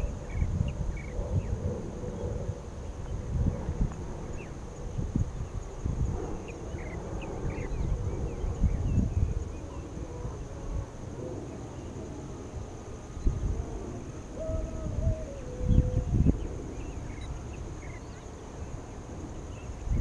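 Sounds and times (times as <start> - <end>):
steady high-pitched hum: 0.0 - 20.0
wind gusting on microphone: 0.0 - 20.0.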